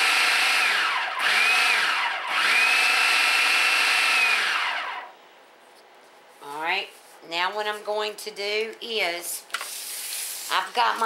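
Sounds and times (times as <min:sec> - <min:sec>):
food processor motor whining: 0:00.0 - 0:05.1.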